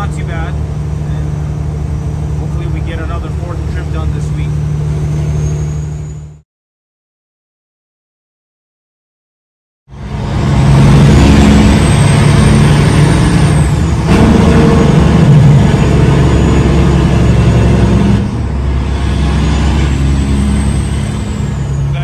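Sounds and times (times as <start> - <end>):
diesel truck engine drone: 0.0 - 6.4, 9.9 - 22.0
road noise: 0.0 - 6.4, 9.9 - 22.0
faint high whistle: 5.3 - 6.4.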